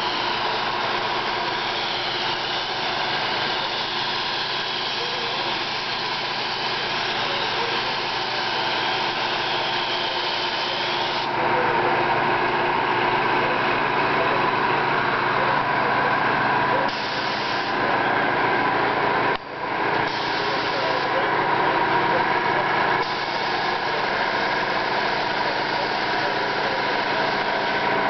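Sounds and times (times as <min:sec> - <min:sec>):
paint spray gun hissing: 0:00.0 - 0:11.4, 0:16.9 - 0:17.8, 0:20.0 - 0:21.2, 0:23.0 - 0:28.0
mechanical hum: 0:00.0 - 0:28.0.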